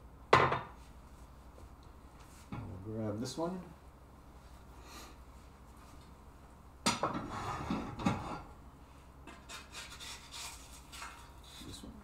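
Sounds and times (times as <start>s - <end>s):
spatula scraping a pan: 7.2s - 8.5s, 9.3s - 11.6s.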